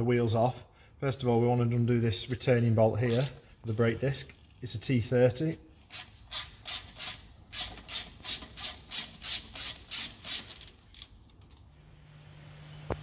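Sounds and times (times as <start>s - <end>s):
ratchet clicking: 5.9s - 11.6s.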